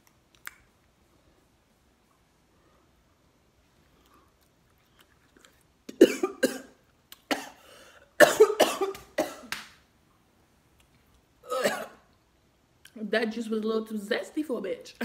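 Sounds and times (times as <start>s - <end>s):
woman coughing: 5.9s - 7.6s, 8.2s - 9.5s, 11.4s - 12.0s.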